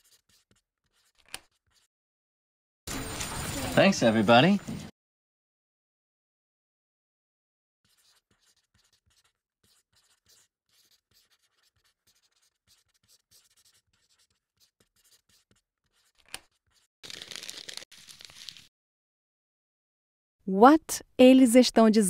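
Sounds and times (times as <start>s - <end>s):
pencil scratching on paper: 0.0s - 1.9s, 7.8s - 18.7s.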